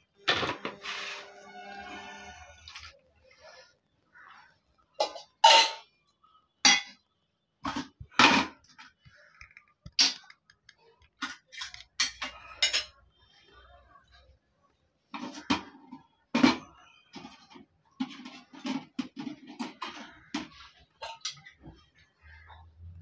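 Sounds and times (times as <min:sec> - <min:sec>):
metal dishes clinking on cement floor: 0:05.0 - 0:05.9, 0:06.7 - 0:07.0, 0:11.2 - 0:13.0, 0:16.4 - 0:21.6.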